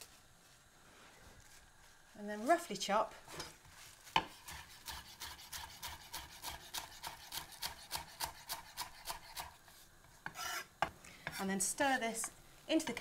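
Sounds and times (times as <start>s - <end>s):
knife chopping on wooden board: 4.2s - 9.5s.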